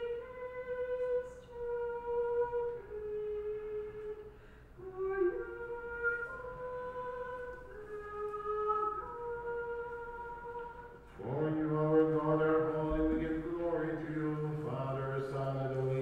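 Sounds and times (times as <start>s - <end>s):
soft flute-like solo melody: 0.0s - 11.0s.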